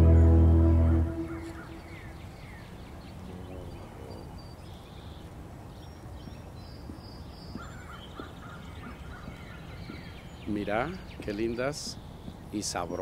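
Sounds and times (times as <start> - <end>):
high bird chirps: 0.0 - 2.7.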